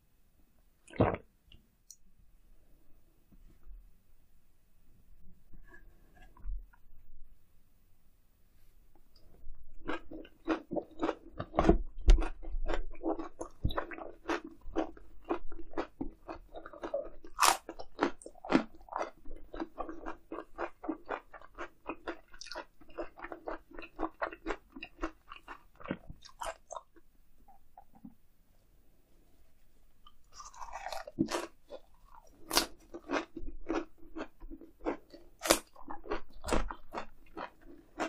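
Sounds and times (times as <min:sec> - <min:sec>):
chewing grilled eel: 0:09.8 - 0:26.9, 0:30.2 - 0:38.0.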